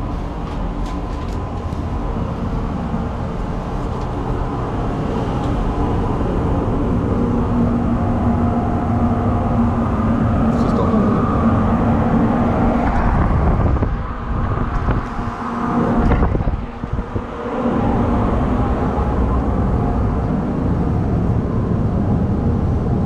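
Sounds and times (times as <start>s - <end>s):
ventilation fans humming: 0.0s - 23.0s.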